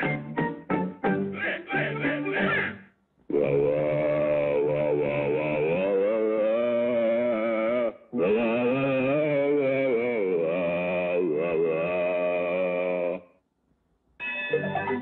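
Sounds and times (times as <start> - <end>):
cartoon character singing deeply: 1.4 - 13.4.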